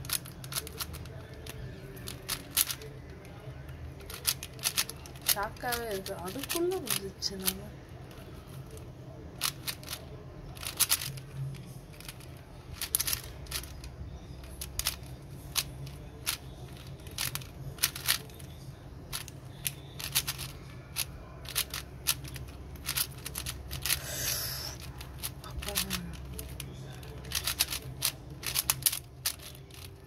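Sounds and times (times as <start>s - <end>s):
puzzle cube layers clicking: 21.4s - 26.2s, 27.2s - 29.9s.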